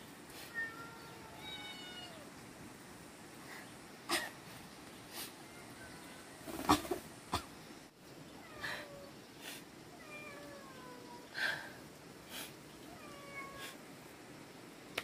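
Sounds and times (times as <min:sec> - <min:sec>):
woman crying quietly: 0:08.4 - 0:09.7.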